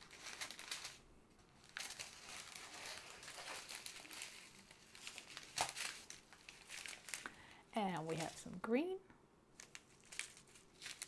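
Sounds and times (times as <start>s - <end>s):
plastic bags crinkling: 0.0s - 8.6s, 9.6s - 11.0s.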